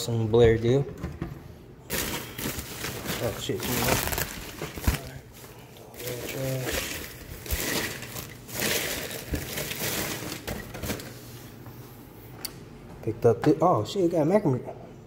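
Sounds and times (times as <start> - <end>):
envelopes rustling and crinkling: 1.9 - 11.1.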